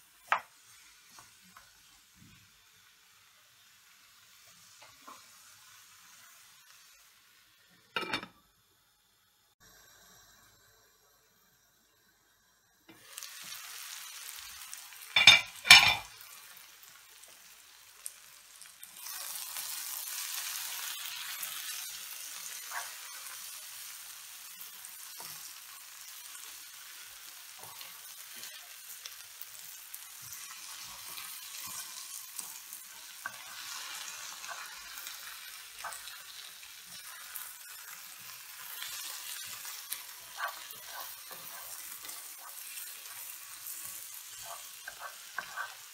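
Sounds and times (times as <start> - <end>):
onions sizzling in a frying pan: 0.0 - 45.9
glass lid clanking: 15.2 - 16.1
wooden spoon scraping and tapping pan: 30.3 - 34.8, 39.4 - 45.9.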